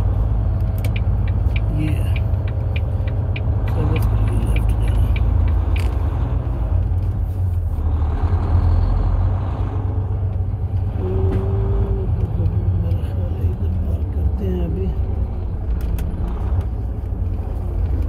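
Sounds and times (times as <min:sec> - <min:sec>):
truck diesel engine rumble: 0:00.0 - 0:18.0
light rapid ticking: 0:00.4 - 0:06.9.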